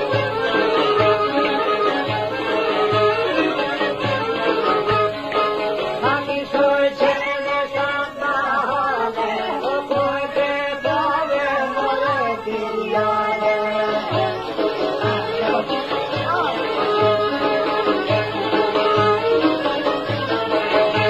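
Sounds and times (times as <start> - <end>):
instrumental accompaniment: 0.0 - 21.0
person singing ornamented melody: 5.9 - 21.0.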